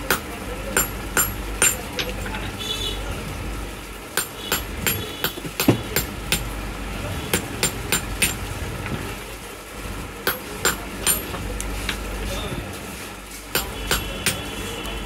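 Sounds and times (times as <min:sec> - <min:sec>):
hammer tapping metal punch: 0:00.0 - 0:01.9, 0:04.2 - 0:06.5, 0:07.3 - 0:08.4, 0:10.3 - 0:11.4, 0:13.5 - 0:14.5.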